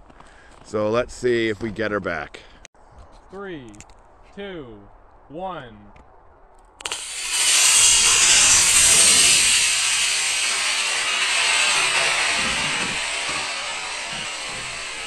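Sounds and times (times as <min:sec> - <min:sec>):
rocket motor igniting crackle: 0:06.8 - 0:15.0
rocket motor rushing hiss: 0:06.8 - 0:15.0.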